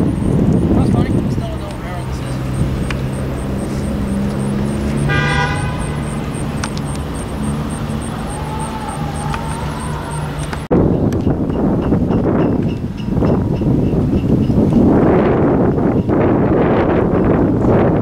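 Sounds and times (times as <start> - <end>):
freight train diesel drone: 0.0 - 14.8
train horn toot: 5.0 - 6.2.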